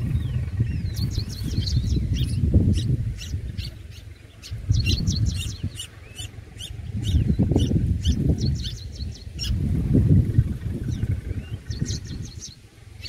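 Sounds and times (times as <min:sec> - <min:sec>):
low rumble: 0:00.0 - 0:05.7
nestlings begging with high chirps: 0:00.0 - 0:13.0.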